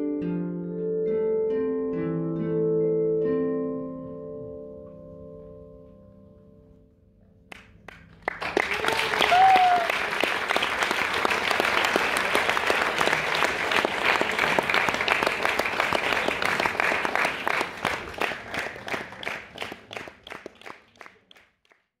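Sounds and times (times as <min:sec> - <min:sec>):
crowd applauding: 0:07.5 - 0:21.8.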